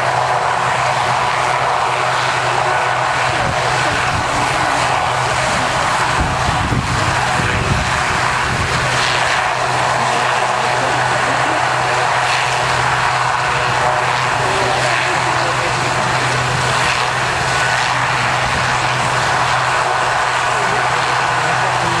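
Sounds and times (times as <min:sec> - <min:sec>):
aircraft engine drone: 0:00.0 - 0:22.0.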